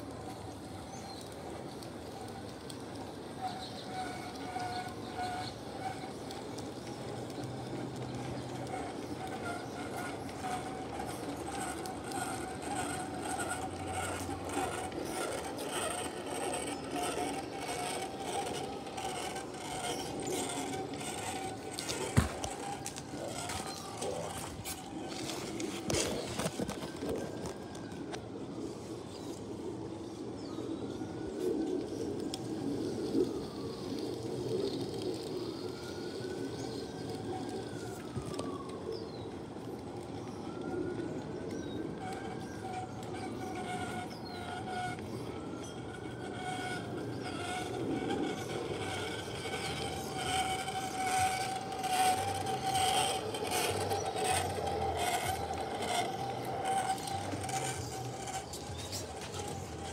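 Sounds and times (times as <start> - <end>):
rumble of train wheels: 0.0 - 59.9
steady whine: 0.0 - 59.9
wheels clicking over track: 0.0 - 59.9
distant siren wailing: 30.8 - 59.9.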